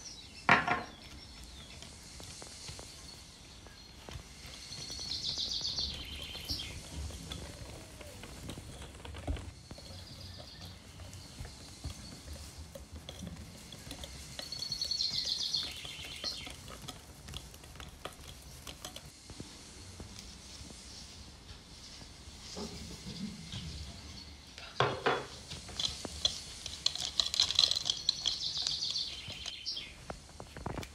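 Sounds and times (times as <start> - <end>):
batter stirred in glass bowl: 4.7 - 19.1, 25.4 - 29.6.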